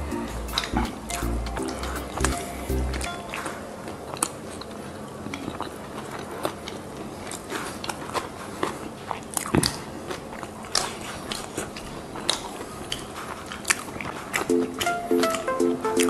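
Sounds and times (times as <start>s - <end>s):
moist chewing: 3.0s - 16.0s.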